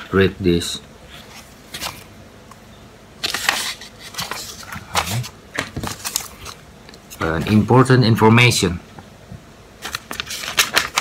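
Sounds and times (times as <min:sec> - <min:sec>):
paper pages rustling: 0:01.1 - 0:02.1, 0:03.2 - 0:07.7, 0:09.8 - 0:11.0.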